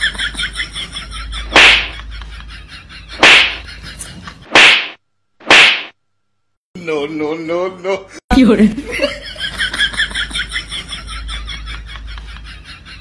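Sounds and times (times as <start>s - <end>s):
people laughing: 0.0s - 4.4s, 7.3s - 13.0s
whip cracks: 1.5s - 1.9s, 3.2s - 3.6s, 4.5s - 6.0s.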